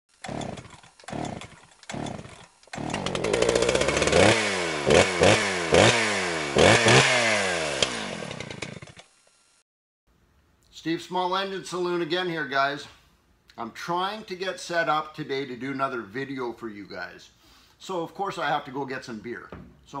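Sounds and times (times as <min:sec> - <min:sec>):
chainsaw engine revving: 0:00.1 - 0:09.2.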